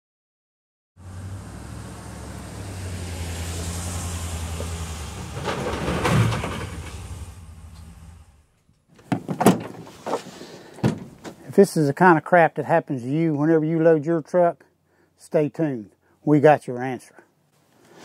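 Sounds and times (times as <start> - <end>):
truck engine running: 1.0 - 8.6
cargo knocking in truck bed: 9.0 - 10.0, 10.8 - 11.4.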